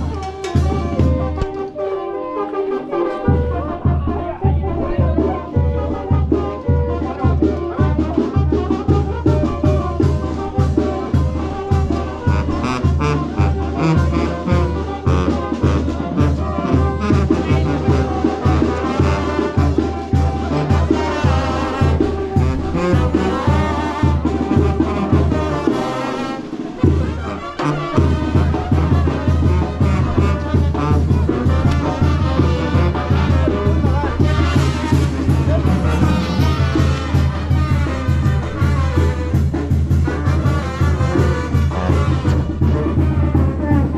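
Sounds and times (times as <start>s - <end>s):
brass band music: 0.0s - 43.9s
steady bass beat: 31.0s - 38.9s.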